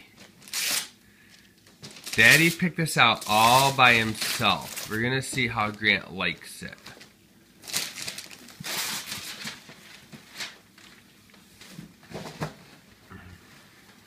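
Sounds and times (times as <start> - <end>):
wrapping paper tearing and crinkling: 0.2 - 1.0, 1.8 - 5.8, 6.8 - 11.0.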